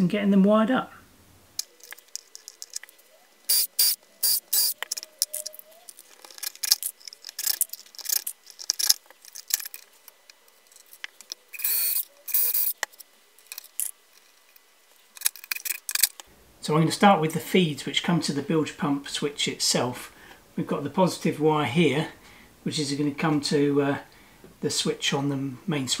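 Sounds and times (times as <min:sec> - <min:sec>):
tools clicking and snipping wire: 0:01.6 - 0:14.6, 0:15.2 - 0:16.2.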